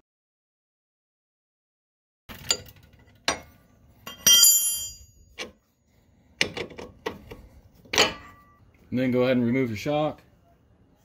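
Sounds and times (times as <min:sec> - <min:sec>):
wrench clinking on metal bolt: 0:02.3 - 0:05.6.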